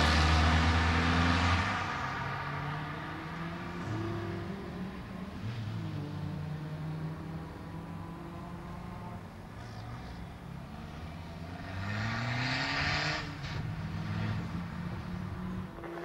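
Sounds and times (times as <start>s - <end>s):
race car engine revving: 10.8s - 16.0s.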